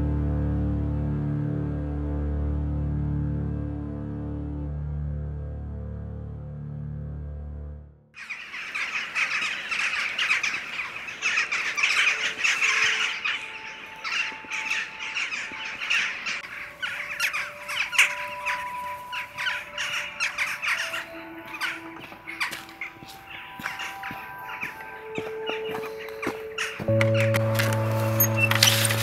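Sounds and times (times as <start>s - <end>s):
flock of birds calling: 8.2s - 29.0s.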